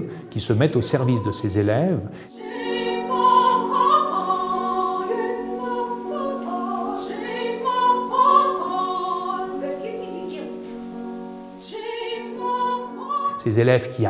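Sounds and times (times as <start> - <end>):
piano accompaniment: 0.0 - 14.0
woman singing operatically: 2.4 - 10.8, 11.7 - 13.4.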